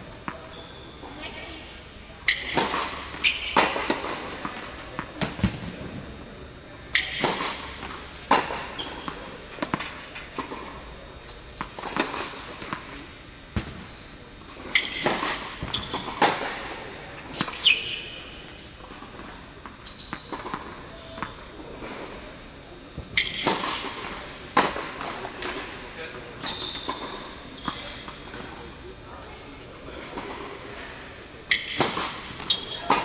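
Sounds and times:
shoes squeaking on court: 0.3s - 1.3s, 2.3s - 5.2s, 7.0s - 13.0s, 14.6s - 22.0s, 26.4s - 30.6s, 31.4s - 33.0s
tennis balls struck and bouncing: 2.3s - 5.8s, 6.9s - 13.9s, 14.6s - 18.0s, 19.1s - 21.4s, 23.2s - 25.7s, 31.5s - 33.0s.

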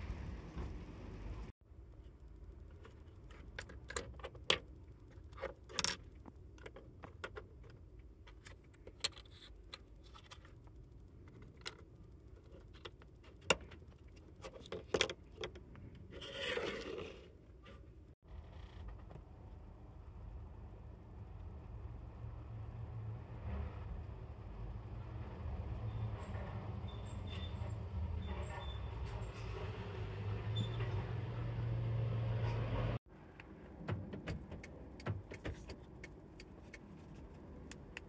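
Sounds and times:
scraping rub: 16.1s - 17.9s.

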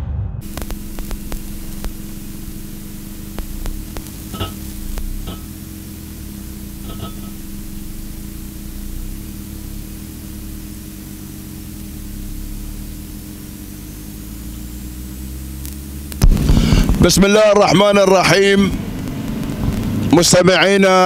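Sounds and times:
electrical hum and static hiss: 0.4s - 21.0s.

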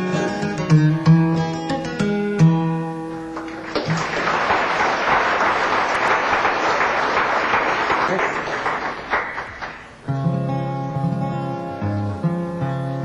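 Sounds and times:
acoustic guitar picking: 0.0s - 3.7s, 9.8s - 13.0s
audience applause: 3.3s - 10.0s.

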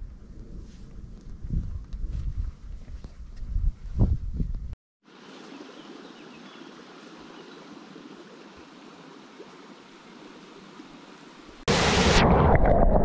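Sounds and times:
creek water flowing: 5.0s - 11.7s.

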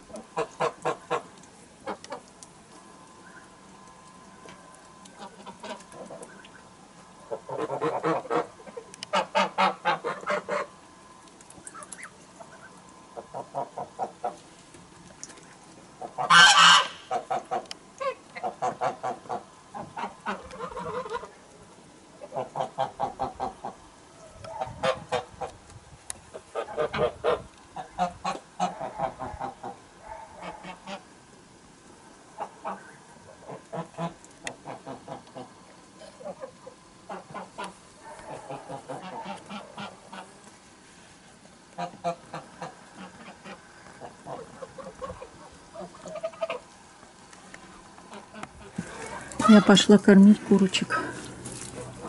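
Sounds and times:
geese honking and cackling: 0.0s - 2.4s, 5.1s - 10.8s, 11.6s - 14.5s, 15.5s - 21.4s, 22.2s - 23.8s, 24.5s - 25.6s, 26.3s - 31.1s, 32.3s - 40.4s, 41.7s - 46.9s.

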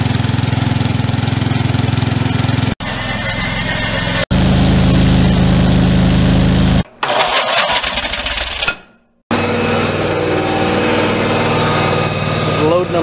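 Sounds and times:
garden tractor engine running: 0.0s - 8.6s, 9.3s - 13.0s
hissy machine sound: 2.8s - 6.9s.

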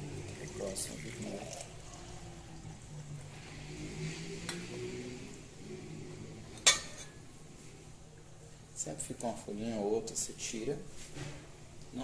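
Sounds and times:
liquid trickling into jar: 0.0s - 2.7s.

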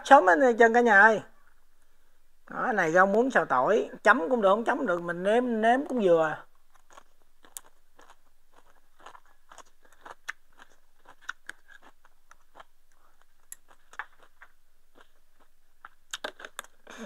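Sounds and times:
chewing: 6.4s - 16.9s.

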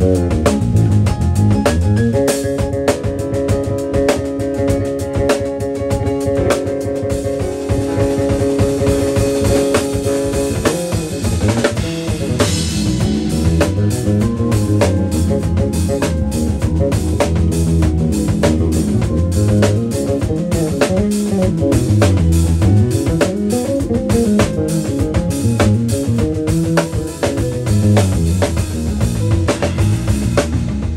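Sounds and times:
drum kit playing: 0.0s - 30.9s
electric bass guitar: 0.0s - 30.9s.

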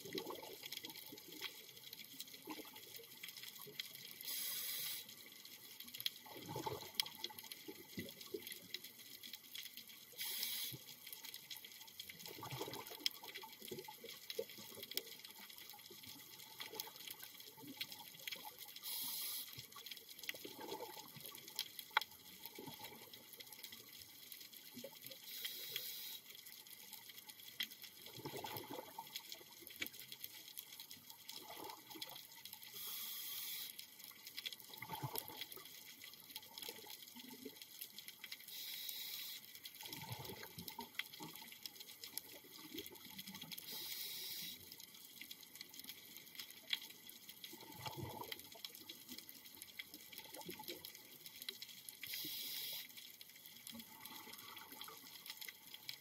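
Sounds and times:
exhaled bubbles gurgling: 0.0s - 4.9s, 6.2s - 8.8s, 12.1s - 19.4s, 20.3s - 21.5s, 22.3s - 23.6s, 28.0s - 29.7s, 31.2s - 33.0s, 34.6s - 35.7s, 39.8s - 44.4s, 47.4s - 49.2s, 53.6s - 56.0s
regulator hissing on inhalation: 4.3s - 5.1s, 10.2s - 10.8s, 18.9s - 19.6s, 25.3s - 26.2s, 32.8s - 33.7s, 38.6s - 39.4s, 43.7s - 44.6s, 52.2s - 52.9s.

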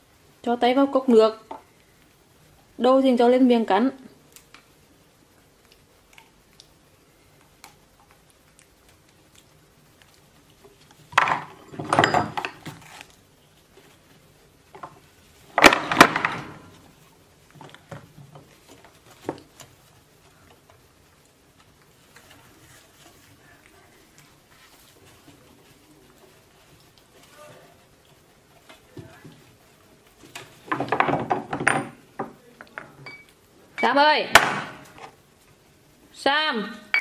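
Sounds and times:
bottles clattering on wooden table: 11.2s - 12.6s, 30.7s - 32.4s.

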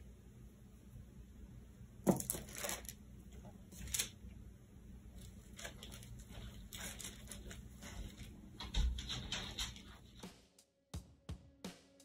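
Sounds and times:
plastic bag crinkling: 2.1s - 3.0s, 3.7s - 4.2s, 5.1s - 8.4s.

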